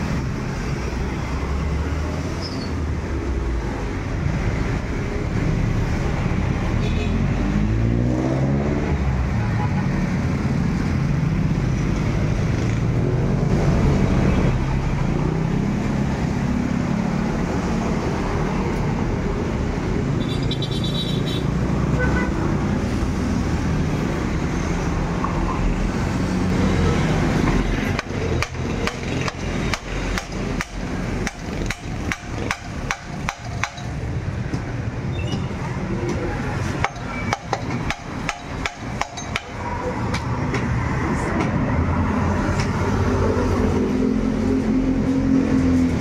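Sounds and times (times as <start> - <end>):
hammer striking metal with ring: 36.8 - 39.6.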